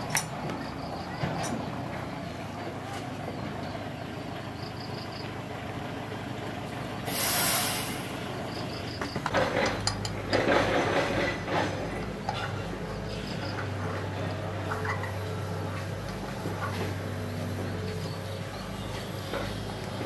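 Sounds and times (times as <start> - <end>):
metal parts clattering: 0.0 - 0.5
short burst of hissing: 7.1 - 8.2.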